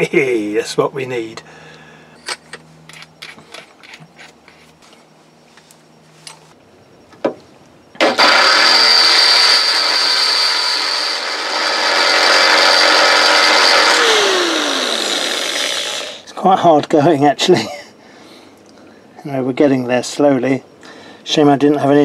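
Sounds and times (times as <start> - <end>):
electric drill boring through steel: 8.0 - 16.2.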